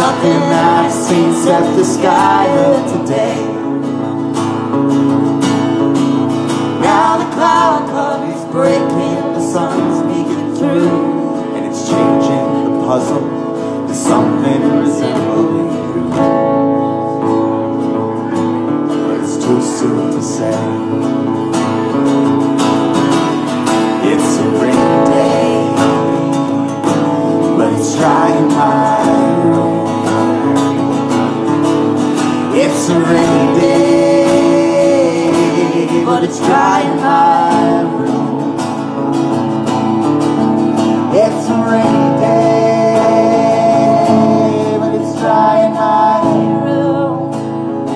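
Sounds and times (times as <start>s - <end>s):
people singing: 0.0s - 4.1s, 6.6s - 16.5s, 23.6s - 39.0s, 40.8s - 47.9s
acoustic guitars strummed: 0.0s - 47.9s.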